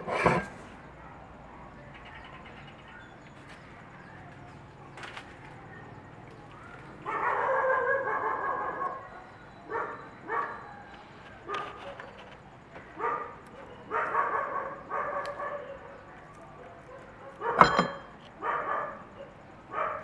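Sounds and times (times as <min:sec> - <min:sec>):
dog long drawn-out call: 0:06.5 - 0:17.6, 0:18.4 - 0:20.0
dog barking: 0:07.0 - 0:12.2, 0:12.9 - 0:20.0.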